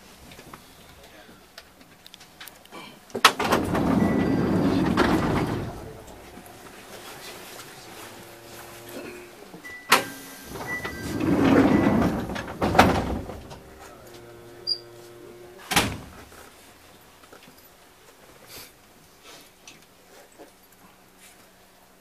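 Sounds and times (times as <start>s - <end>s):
train machinery hum: 0.0s - 18.4s
train door knocks: 9.9s - 14.0s.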